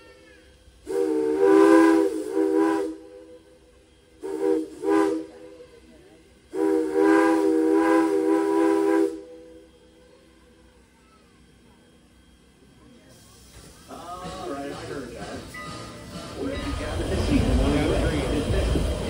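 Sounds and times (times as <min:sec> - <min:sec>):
steam locomotive whistle: 0:00.8 - 0:03.6, 0:04.2 - 0:05.7, 0:06.5 - 0:09.7.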